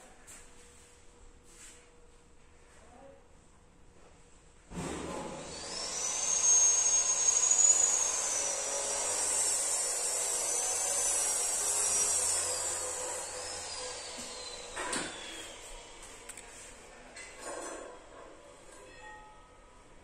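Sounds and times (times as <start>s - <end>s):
electric motor whining: 5.4s - 16.3s.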